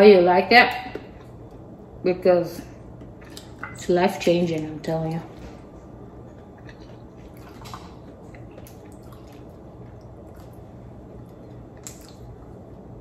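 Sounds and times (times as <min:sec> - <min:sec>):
low room noise: 0:00.0 - 0:13.0
wet chewing clicks and smacks: 0:02.9 - 0:03.6, 0:05.9 - 0:12.9.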